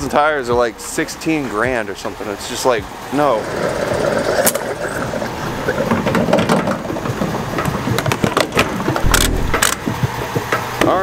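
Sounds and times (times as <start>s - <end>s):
fuel flowing into tank: 3.2s - 7.9s.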